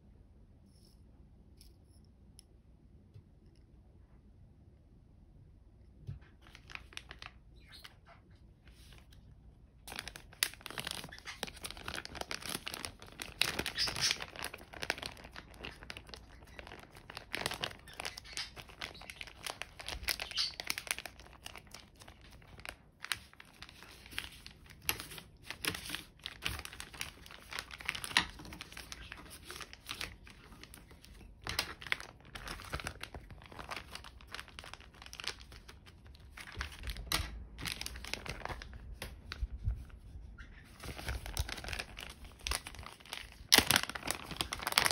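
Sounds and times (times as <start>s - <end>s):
plastic bag crinkling: 6.3s - 8.0s, 9.8s - 39.8s, 40.7s - 44.9s.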